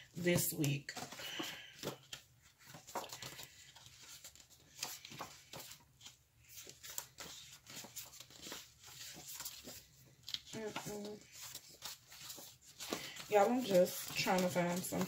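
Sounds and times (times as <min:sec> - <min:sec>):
pages rustling and flicking: 0:00.0 - 0:15.0.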